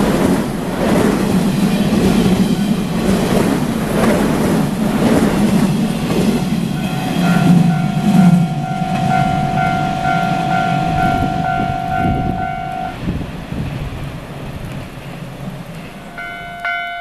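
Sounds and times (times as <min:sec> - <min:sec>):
train rumbling and wheels clattering: 0:00.0 - 0:17.0
level crossing warning bell: 0:06.7 - 0:13.0, 0:15.9 - 0:17.0.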